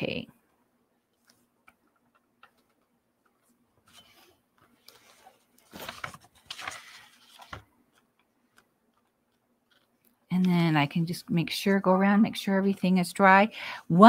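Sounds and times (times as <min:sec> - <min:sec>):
paper rustling and sliding: 0:03.4 - 0:08.1.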